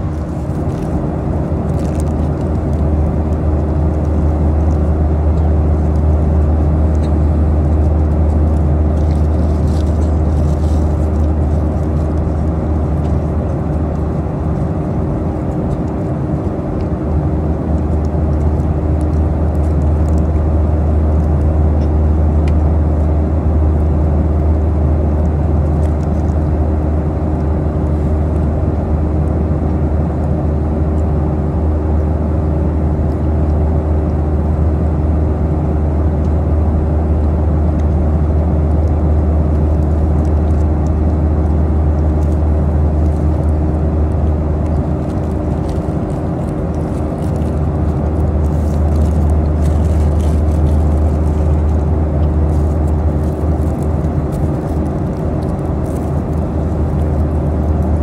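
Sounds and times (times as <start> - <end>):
paper wrapper crinkling: 0.0 - 21.6, 38.8 - 58.0
airplane cabin engine drone: 0.0 - 58.0.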